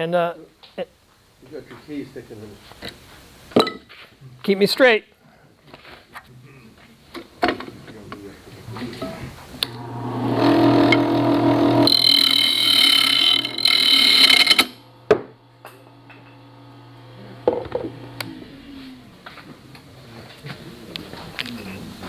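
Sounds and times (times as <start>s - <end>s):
lathe motor hum: 9.6s - 19.5s
gouge cutting spinning wood: 9.7s - 19.2s.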